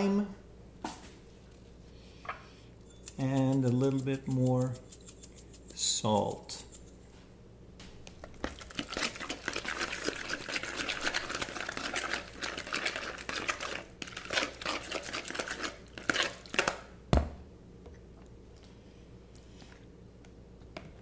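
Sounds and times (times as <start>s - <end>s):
spoon mashing guacamole in bowl: 2.8s - 7.1s, 8.1s - 16.9s.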